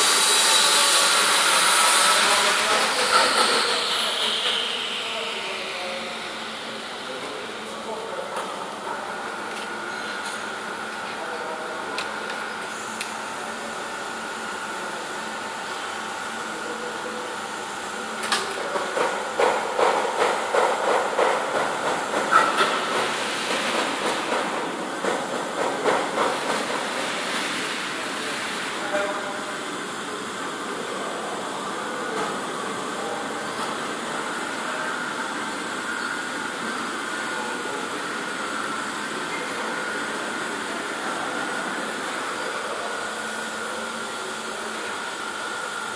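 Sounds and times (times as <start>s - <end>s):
welding arc hissing: 0.0s - 5.6s
welding arc hum and crackle: 0.0s - 45.9s.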